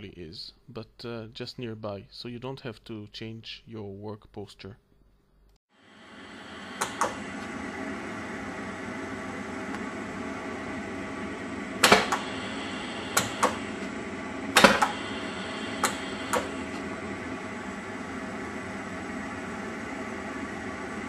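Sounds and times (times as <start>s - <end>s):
foot switch clicking: 6.8s - 7.2s, 11.8s - 12.4s, 13.1s - 13.7s, 14.6s - 15.1s, 15.7s - 16.8s
gas torch hissing: 10.2s - 17.8s.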